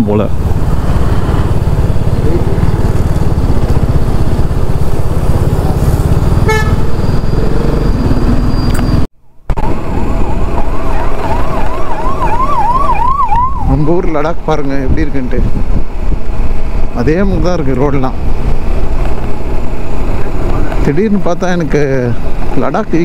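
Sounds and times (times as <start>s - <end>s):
wind rushing over microphone: 0.0s - 23.0s
siren warbling: 6.9s - 9.1s, 9.9s - 14.0s.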